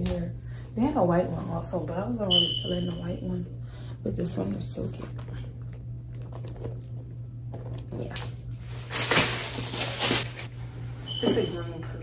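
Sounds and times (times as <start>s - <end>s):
wrapping crinkling and rustling: 7.6s - 11.7s.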